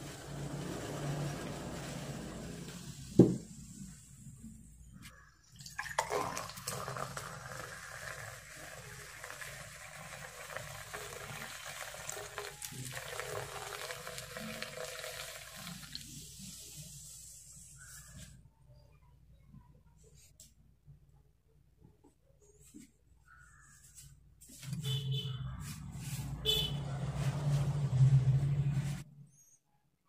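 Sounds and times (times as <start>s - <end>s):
soda pouring and fizzing: 0.0s - 4.2s, 5.5s - 17.7s.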